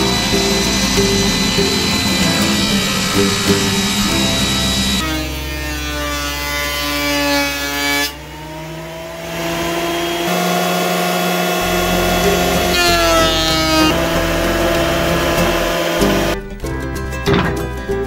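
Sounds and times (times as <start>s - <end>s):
thickness planer cutting wood: 0.0s - 16.4s.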